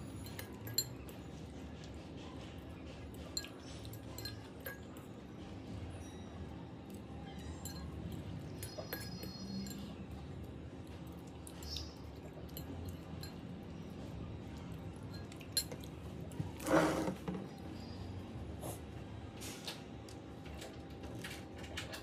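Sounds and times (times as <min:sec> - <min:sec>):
fork scraping glass bowl: 0:16.6 - 0:17.2.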